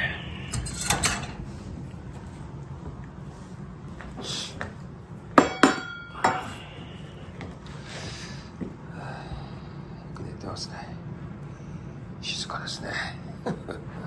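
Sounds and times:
dishes clinking: 5.4 - 6.5.

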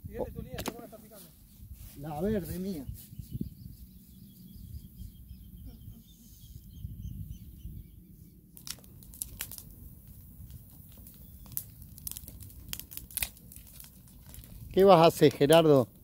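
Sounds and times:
wind rumble on microphone: 0.0 - 0.7, 1.4 - 14.9
faint bird chirps: 2.6 - 8.5
wood fire crackling: 8.5 - 16.0.

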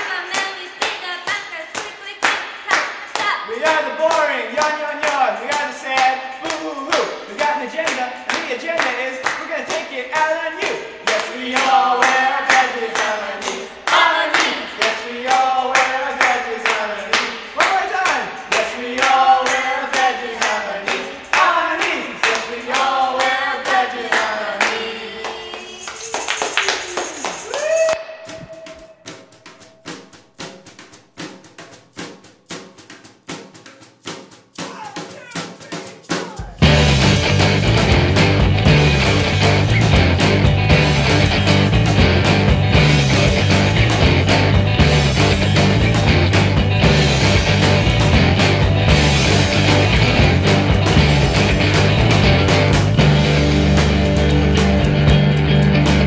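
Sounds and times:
quick steady drum beat: 29.1 - 55.4
guitars: 36.5 - 56.0
rock band instrumental: 36.6 - 56.0.

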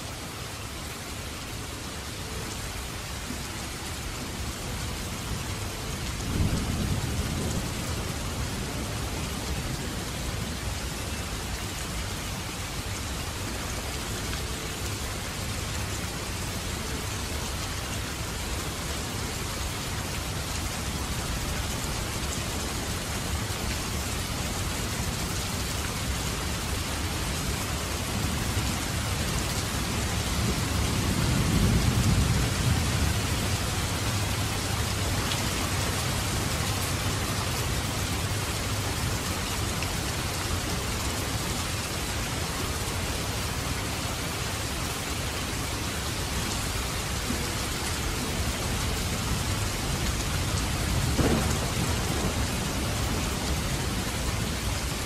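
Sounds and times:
steady rain falling: 0.0 - 55.0
low roll of thunder: 50.6 - 55.0.

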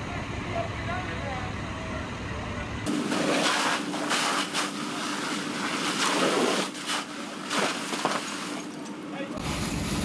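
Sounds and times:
steady hum: 2.3 - 10.0
fire hose spraying water: 2.9 - 8.8.

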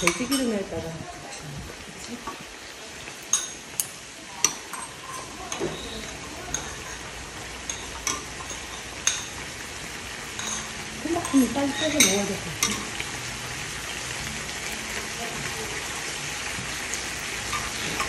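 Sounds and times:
meat sizzling in a pan: 0.0 - 18.0
utensils clicking against pan: 3.1 - 9.5, 10.3 - 13.2, 16.9 - 18.0.

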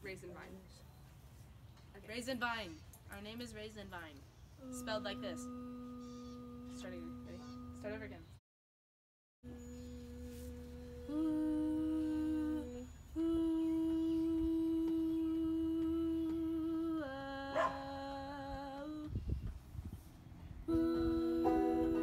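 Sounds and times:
voices humming: 4.6 - 8.4, 9.4 - 19.1.

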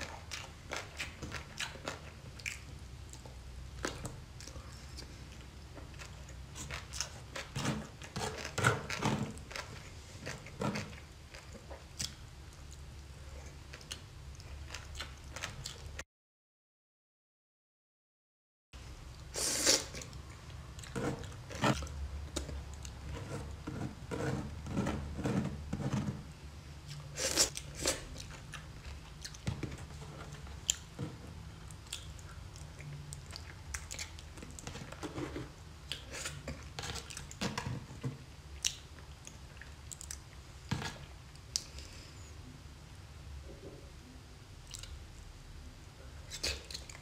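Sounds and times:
wet chewing sounds: 0.0 - 16.0, 26.9 - 41.9, 44.6 - 45.0.

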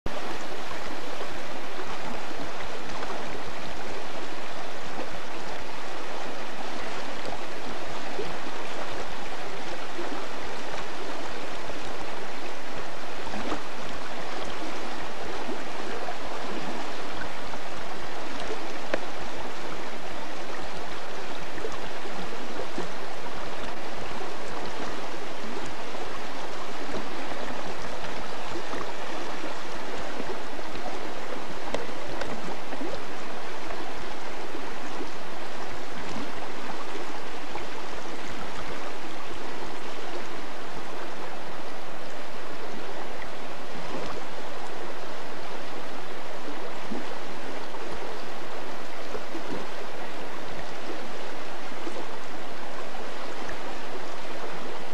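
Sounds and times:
creek water flowing over stones: 0.1 - 54.9.

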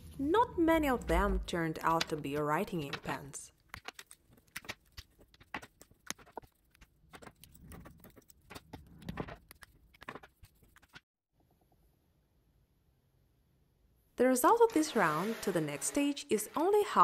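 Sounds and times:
pens clicking: 1.8 - 11.0.

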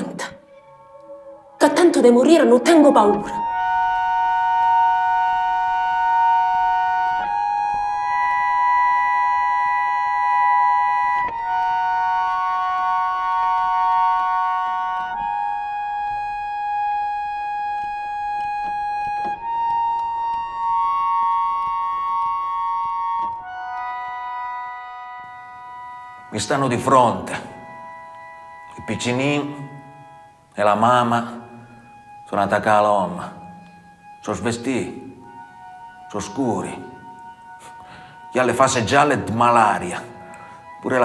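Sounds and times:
sustained keyboard chords: 0.0 - 41.0.

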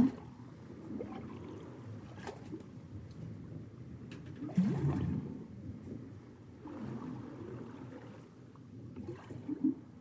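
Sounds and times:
water sloshing and gurgling in bilge: 0.0 - 2.7, 4.3 - 5.4, 6.6 - 9.9
distant seawash: 4.4 - 10.0.

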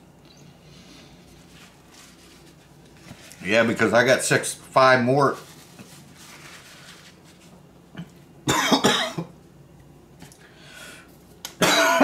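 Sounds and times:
man coughing: 8.5 - 9.4, 11.6 - 12.0.

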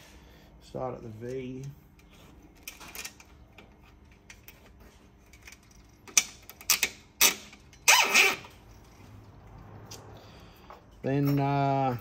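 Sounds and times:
cable tie ratcheting zip: 6.6 - 8.6.

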